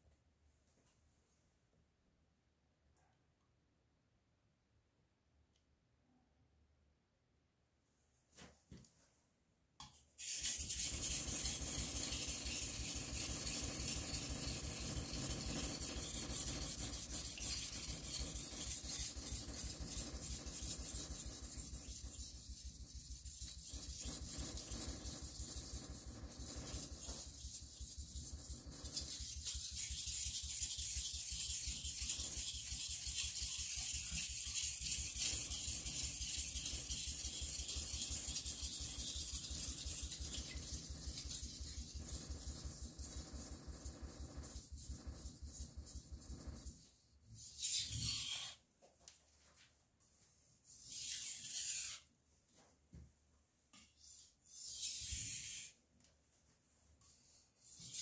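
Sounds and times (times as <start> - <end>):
knife grinding on whetstone: 10.2 - 43.5, 47.4 - 48.6, 50.7 - 52.0.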